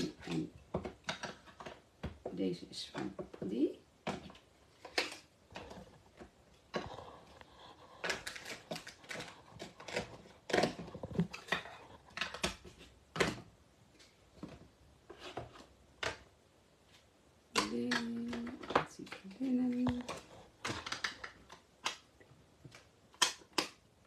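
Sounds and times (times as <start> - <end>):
plastic lids snapping: 4.0 - 6.9, 8.0 - 13.5, 17.5 - 23.8.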